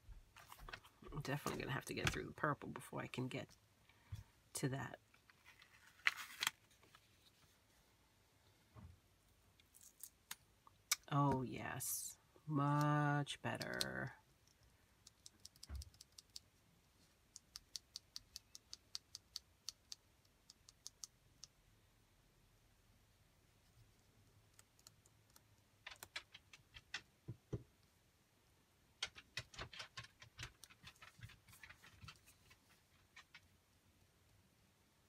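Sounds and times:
small wax pieces clicking: 24.5 - 27.1.

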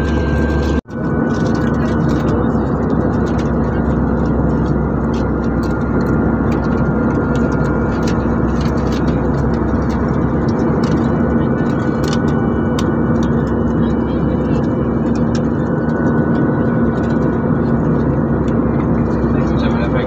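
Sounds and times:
constant low hum: 0.0 - 20.0
jet cabin engine roar: 0.0 - 20.0.

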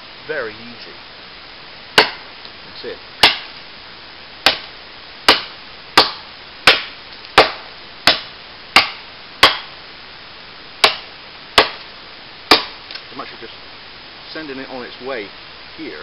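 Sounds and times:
machete chopping into log: 2.0 - 2.3, 3.2 - 3.5, 4.4 - 4.7, 5.3 - 9.7, 10.8 - 11.9, 12.5 - 12.8.

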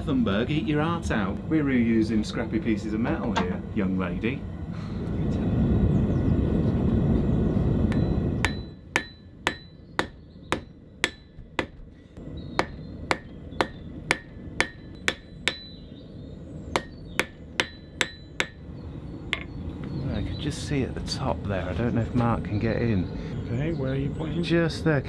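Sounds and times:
gas forge burner rumbling: 0.0 - 25.0
hammer striking steel on anvil: 7.9 - 11.8, 12.6 - 15.8, 16.7 - 18.6.

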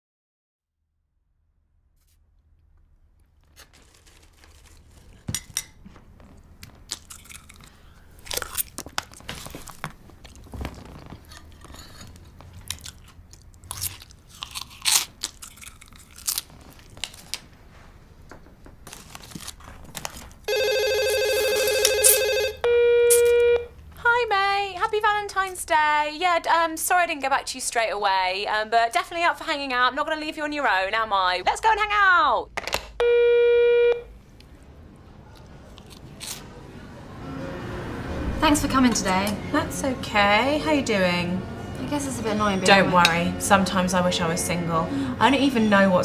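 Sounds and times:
crunching and clicking: 6.2 - 17.6, 18.8 - 20.5
electronic ringtone: 20.5 - 23.7, 33.0 - 34.0.

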